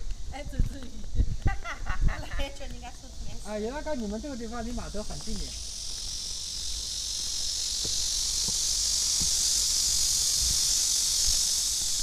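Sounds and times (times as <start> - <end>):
cicadas singing: 0.0 - 12.0
faint footsteps: 2.5 - 12.0.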